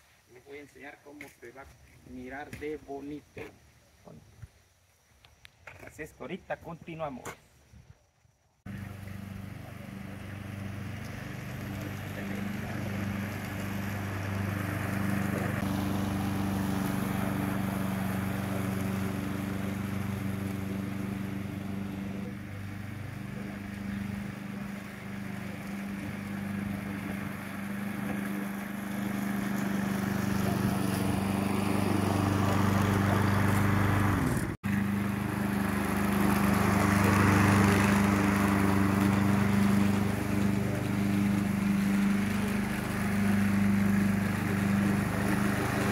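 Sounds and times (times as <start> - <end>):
lawn mower engine cutting grass: 8.7 - 45.9.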